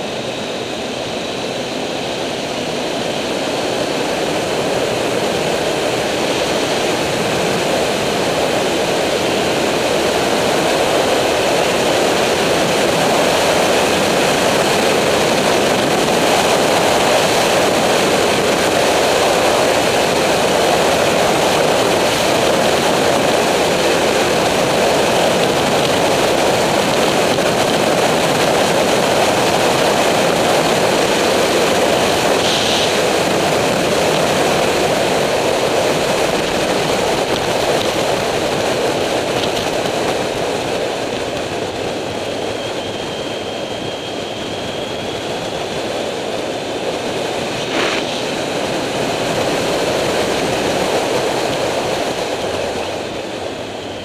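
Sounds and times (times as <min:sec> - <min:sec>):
motorcycle engine roar: 0:00.0 - 0:54.0
wind rushing over microphone: 0:00.0 - 0:54.0.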